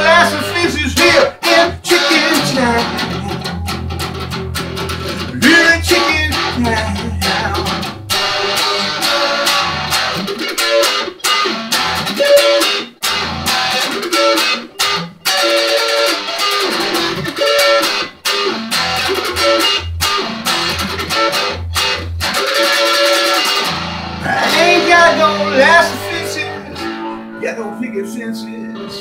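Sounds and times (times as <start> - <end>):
electric guitar through amplifier: 0.0 - 29.0.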